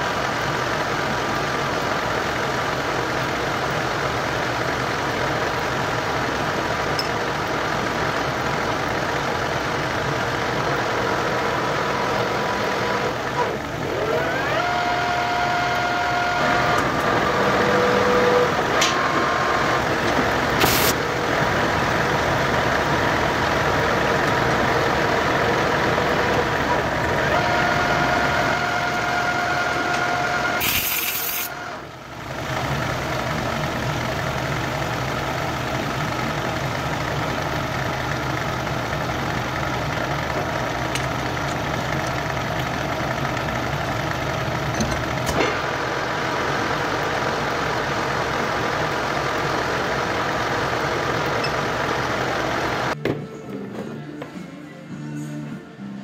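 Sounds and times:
lathe motor humming: 0.1s - 53.0s
harsh hiss of tool cutting: 30.6s - 31.5s.

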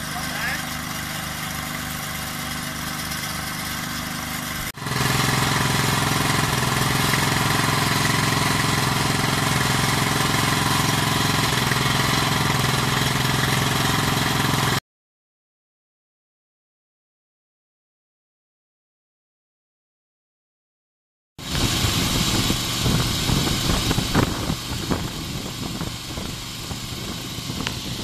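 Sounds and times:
water pump running: 0.0s - 14.8s, 21.4s - 28.0s.

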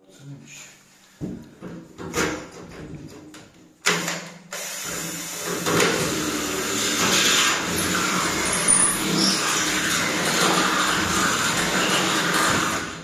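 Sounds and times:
cordless drill drilling: 4.5s - 13.0s.

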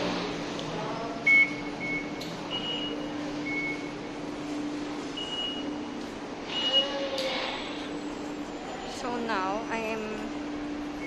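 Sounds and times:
station background noise: 0.0s - 11.0s
steady low hum: 0.0s - 11.0s
fare gate beeps: 1.3s - 4.1s, 5.2s - 5.8s, 6.5s - 7.0s.

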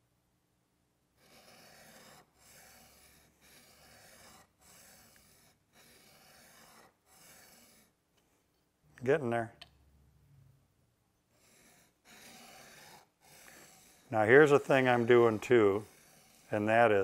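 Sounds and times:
chisel rasping on sharpening plate: 1.2s - 8.0s, 11.4s - 17.0s.

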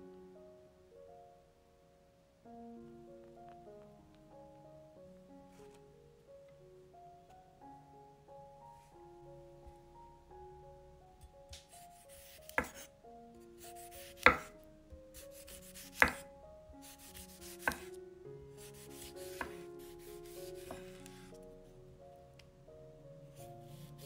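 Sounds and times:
soft background music: 0.0s - 24.0s
knife slicing tomato: 11.6s - 12.9s, 13.6s - 14.6s, 15.2s - 16.2s, 16.8s - 17.9s, 18.6s - 21.2s
knife knocking on wooden board: 14.2s - 14.5s, 16.0s - 16.2s.

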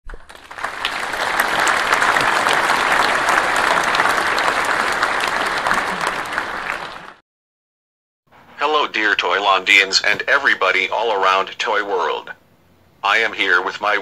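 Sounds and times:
crowd applauding: 0.1s - 7.2s.

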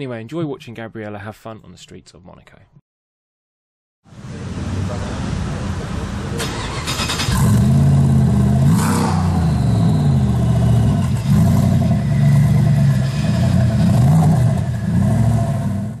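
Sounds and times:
supercar engine revving: 4.2s - 16.0s.

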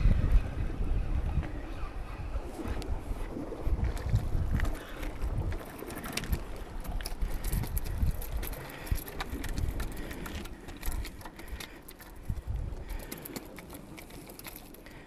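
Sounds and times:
wind rumble on microphone: 0.0s - 15.0s
metallic clicks and rattles: 5.6s - 15.0s.

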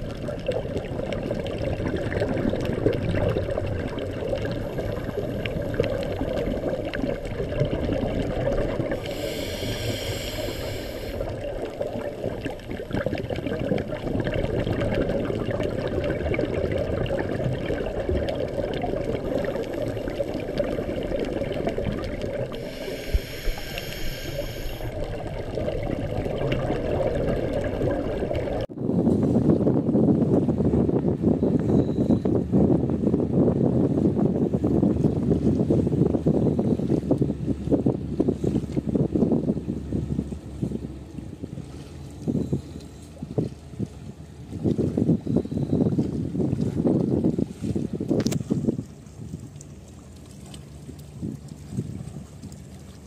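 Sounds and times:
diver exhaling bubbles: 0.0s - 28.7s
steady water rush: 0.0s - 28.8s.

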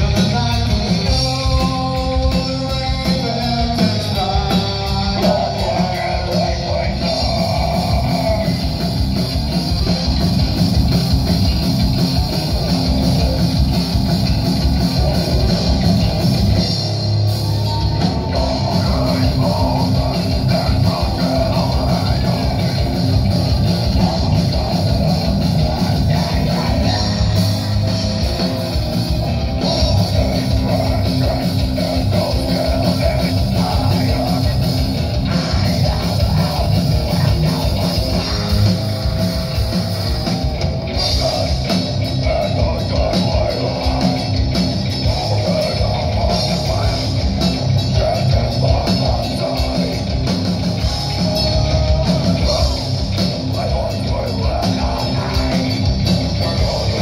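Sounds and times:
heavy metal band playing live: 0.0s - 57.0s
person singing into microphone: 52.3s - 57.0s.

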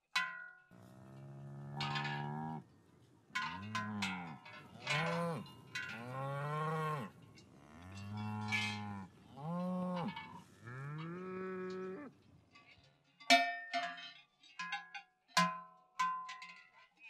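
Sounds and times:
cowbells clanking: 0.0s - 17.0s
cows mooing: 0.8s - 2.7s, 3.4s - 12.2s.

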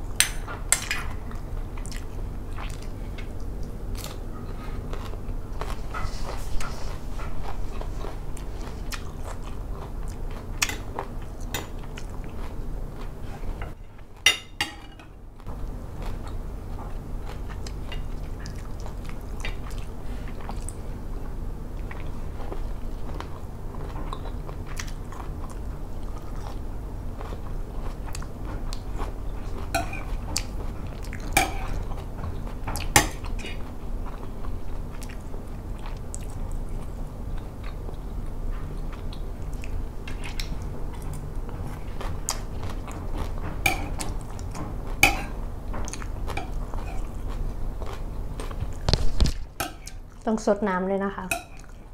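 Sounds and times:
chewing: 1.3s - 14.2s, 15.9s - 20.9s, 21.8s - 50.3s, 51.3s - 51.9s
cutlery clinking on ceramic plate: 14.3s - 15.1s, 45.0s - 45.4s.

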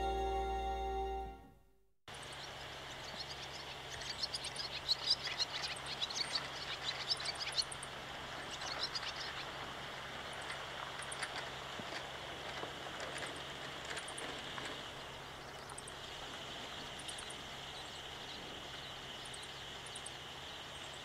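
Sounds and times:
low steady hum: 0.0s - 21.0s
small birds chirping: 2.1s - 21.0s.

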